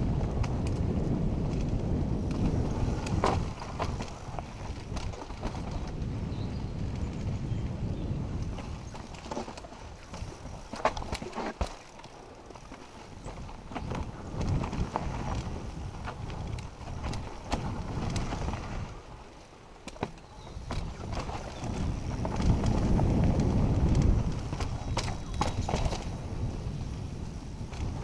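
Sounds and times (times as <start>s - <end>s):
wind rumble on microphone: 0.0s - 11.6s, 12.5s - 19.3s, 20.0s - 28.0s
bike tyres crunching over stones: 0.0s - 28.0s
bike clacking on rocks: 1.5s - 6.0s, 8.4s - 18.9s, 19.8s - 26.2s.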